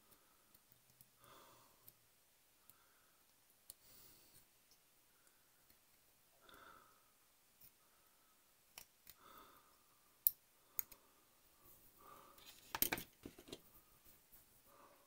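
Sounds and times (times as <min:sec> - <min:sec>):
clicks and taps of plastic model parts: 0:12.4 - 0:13.6.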